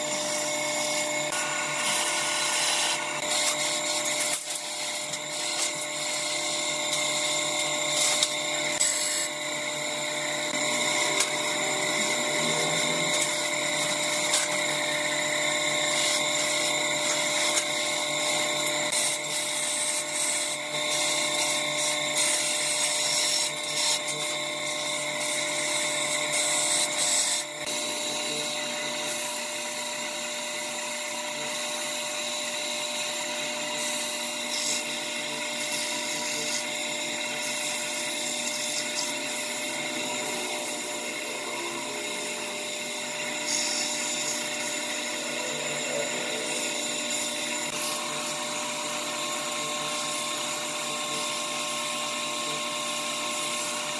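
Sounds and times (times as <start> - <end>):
chisel scraping spinning wood: 0.0 - 24.8
lathe motor whine: 0.0 - 53.9.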